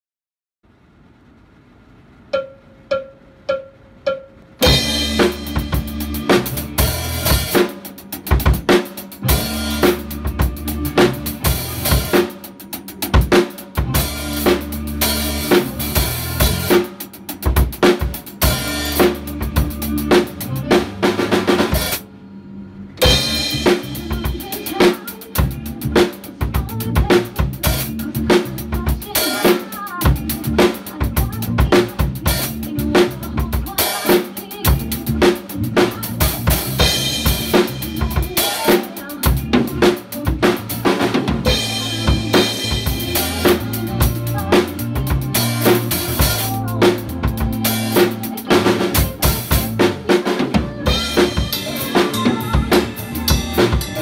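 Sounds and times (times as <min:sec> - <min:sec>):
count-in clicks: 0:02.3 - 0:04.6
drum kit rhythm: 0:02.3 - 0:22.1, 0:23.0 - 0:54.0.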